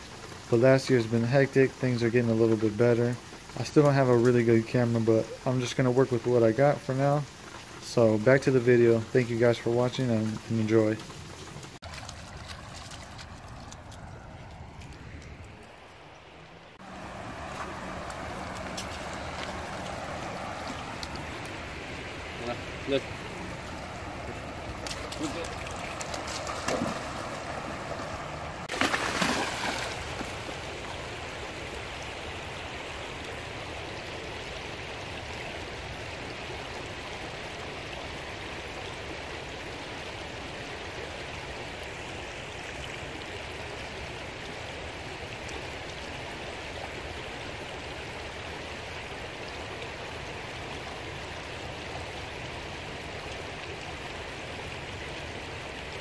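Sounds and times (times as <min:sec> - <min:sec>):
river rushing over rocks: 0:16.8 - 0:31.9.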